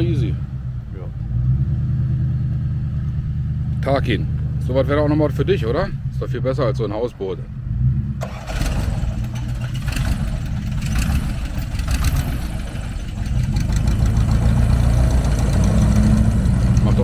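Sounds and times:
airboat engine and propeller: 8.2s - 17.0s.

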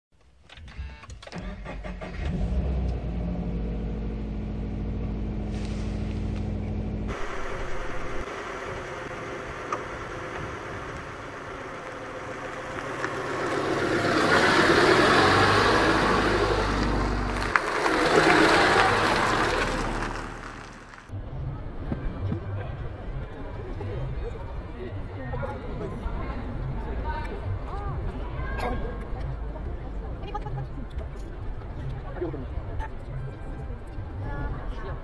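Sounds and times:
car engine starting and idling: 1.2s - 25.0s
car driving past: 2.2s - 21.1s.

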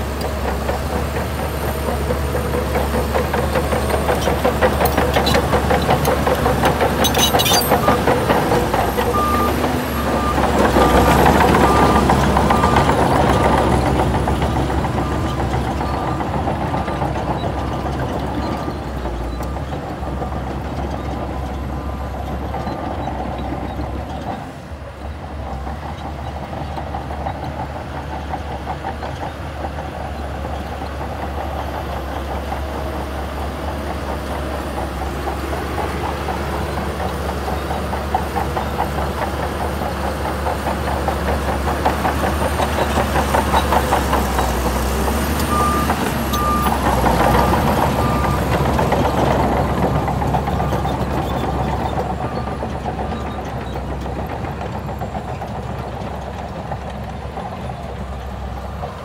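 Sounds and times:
steel tracks clattering: 0.0s - 9.5s
bulldozer diesel engine: 0.0s - 59.0s
reversing alarm beeps: 7.0s - 8.0s, 45.5s - 46.8s.

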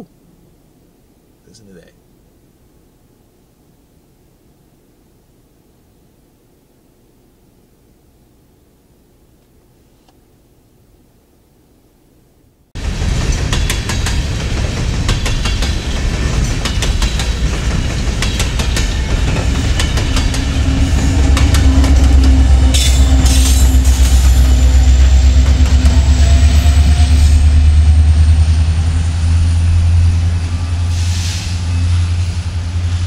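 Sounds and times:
train wheels clicking over rail joints: 12.8s - 27.1s
deep train rumble: 12.8s - 33.0s.

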